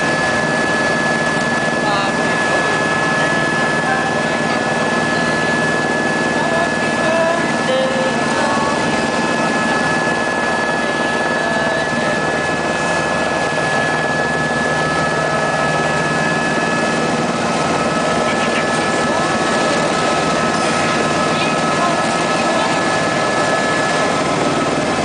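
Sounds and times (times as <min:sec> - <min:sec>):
helicopter hum from inside cabin: 0:00.0 - 0:25.0
high steady whine: 0:00.0 - 0:25.0.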